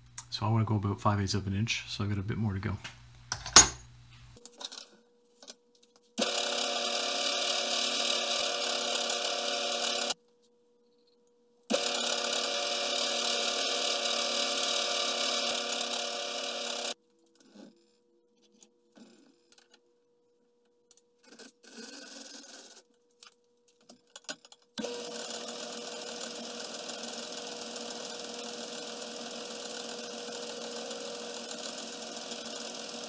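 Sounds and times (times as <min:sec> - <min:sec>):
lathe drilling steel with whirr: 0:06.2 - 0:10.2, 0:11.7 - 0:17.0, 0:24.8 - 0:33.0.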